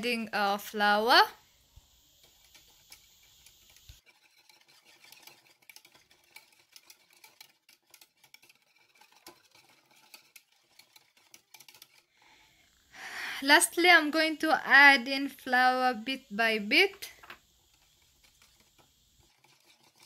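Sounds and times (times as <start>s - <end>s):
whisk beating in ceramic bowl: 3.6s - 12.0s, 17.7s - 20.0s.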